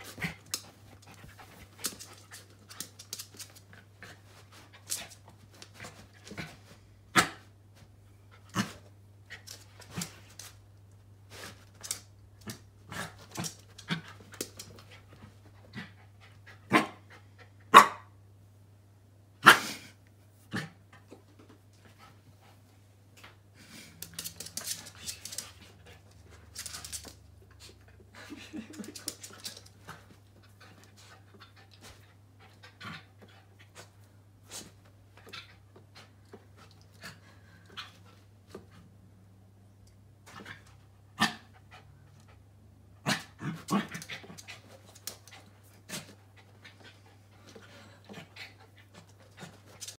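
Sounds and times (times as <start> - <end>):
puppy panting and sniffing: 44.0 - 50.0.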